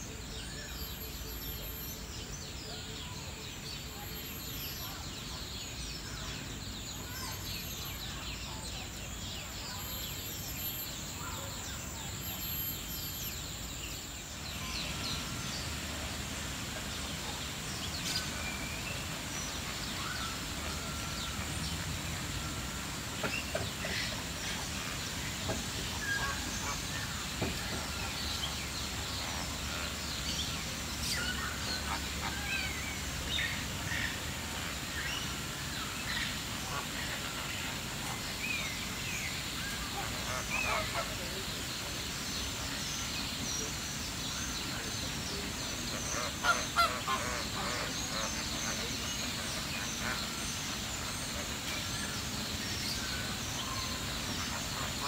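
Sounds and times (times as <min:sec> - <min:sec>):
steady background noise: 0:00.0 - 0:55.0
flamingos honking: 0:39.9 - 0:41.6, 0:45.9 - 0:51.7.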